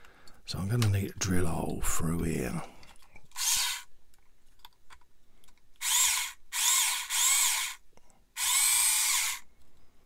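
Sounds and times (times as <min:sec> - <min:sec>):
hobby drill motor whine: 0:03.4 - 0:03.9, 0:05.8 - 0:07.8, 0:08.4 - 0:09.5.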